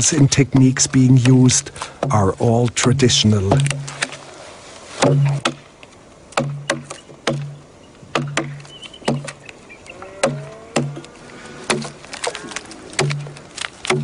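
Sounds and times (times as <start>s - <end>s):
hand tool chopping wood: 2.8s - 4.1s, 5.0s - 5.6s, 6.3s - 9.4s, 10.2s - 14.0s.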